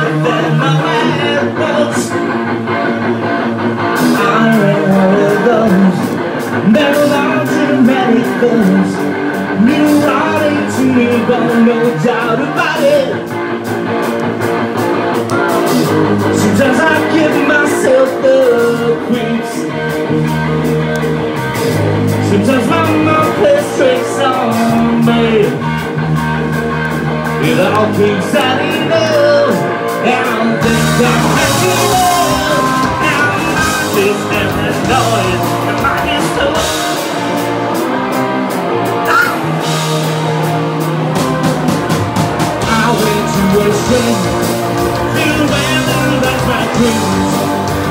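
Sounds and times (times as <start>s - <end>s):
man singing into a microphone: 0.0s - 2.3s, 4.0s - 13.3s, 16.2s - 19.8s, 22.2s - 25.8s, 27.4s - 37.2s, 42.6s - 47.9s
bass guitar: 0.0s - 47.9s
drums: 0.0s - 47.9s
electric guitar: 0.0s - 47.9s.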